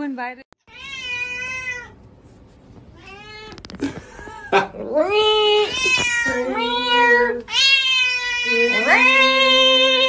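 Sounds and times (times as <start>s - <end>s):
cat meowing loudly: 5.6s - 10.0s.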